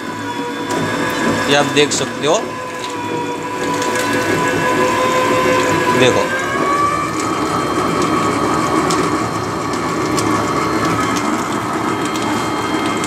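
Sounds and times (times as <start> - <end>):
juice machine motor whine: 0.0 - 13.0
rollers grinding sugarcane: 0.0 - 13.0.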